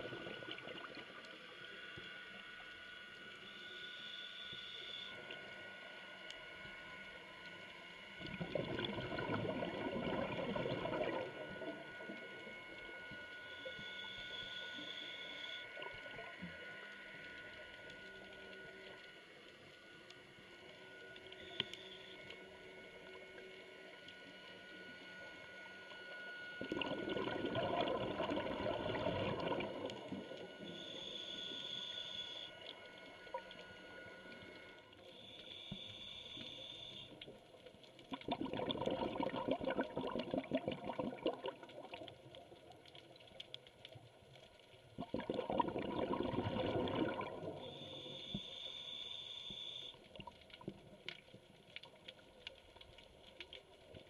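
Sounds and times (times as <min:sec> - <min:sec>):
bubbling exhalations: 0:08.3 - 0:11.3, 0:26.6 - 0:29.8, 0:38.1 - 0:42.0, 0:45.0 - 0:47.6.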